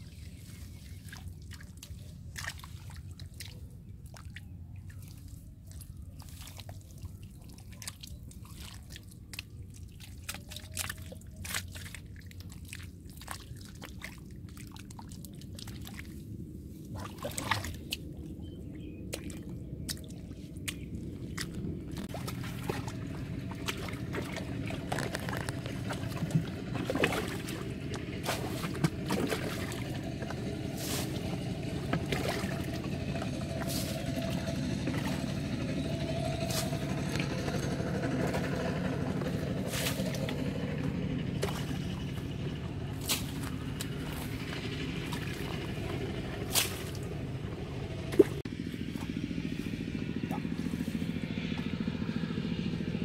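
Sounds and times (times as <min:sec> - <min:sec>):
mud squelching: 0:00.0 - 0:53.0
muddy water sloshing: 0:00.0 - 0:53.0
steady low hum: 0:00.0 - 0:53.0
slaps and splashes: 0:01.0 - 0:16.2, 0:16.9 - 0:18.2, 0:19.1 - 0:33.0, 0:33.6 - 0:35.3, 0:41.4 - 0:42.0, 0:43.0 - 0:47.1, 0:48.1 - 0:49.1.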